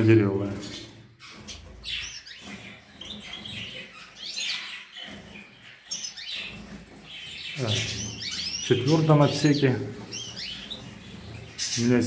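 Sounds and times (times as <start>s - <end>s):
caged birds chirping: 0.0s - 12.0s.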